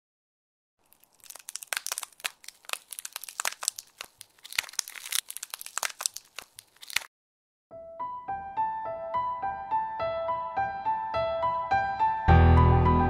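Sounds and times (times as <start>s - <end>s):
dense crackling and snapping clicks: 0.9s - 7.1s.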